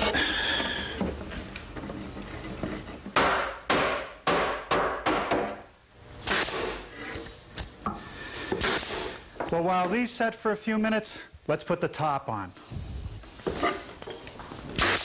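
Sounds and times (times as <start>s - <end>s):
hammer driving nails into wood: 3.2s - 5.6s
sharp crack with hiss: 6.2s - 6.8s, 14.8s - 15.0s.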